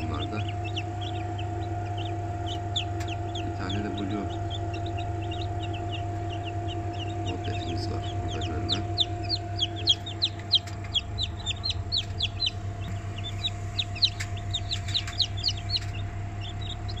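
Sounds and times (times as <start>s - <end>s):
chicks peeping: 0.0s - 17.0s
incubator hum: 0.0s - 17.0s.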